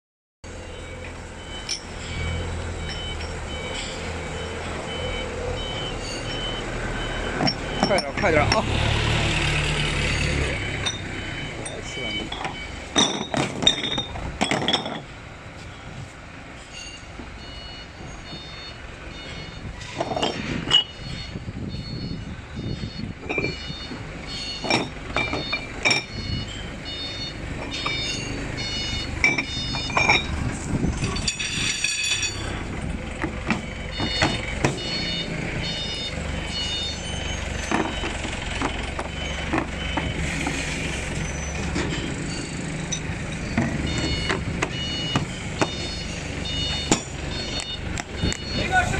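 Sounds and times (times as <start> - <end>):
low engine rumble: 0.5 - 48.9
metal weight plates clinking: 29.2 - 30.3, 30.9 - 32.6.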